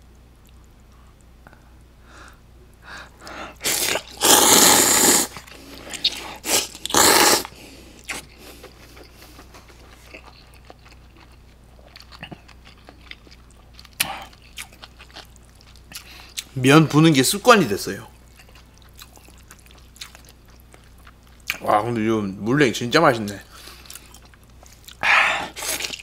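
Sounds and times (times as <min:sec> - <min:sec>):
quiet chewing with mouth clicks: 0:00.3 - 0:01.9, 0:05.3 - 0:16.6, 0:18.1 - 0:21.7, 0:23.3 - 0:26.0
person slurping noodles: 0:03.5 - 0:08.2.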